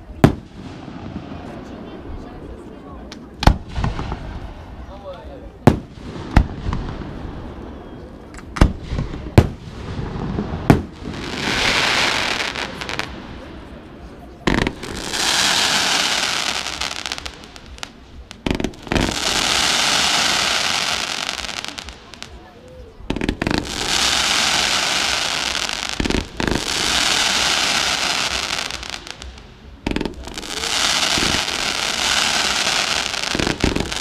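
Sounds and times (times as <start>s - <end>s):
fireworks bangs: 0.0s - 2.0s, 3.1s - 4.8s, 5.5s - 34.0s
fireworks hissing: 8.6s - 13.8s, 14.4s - 34.0s.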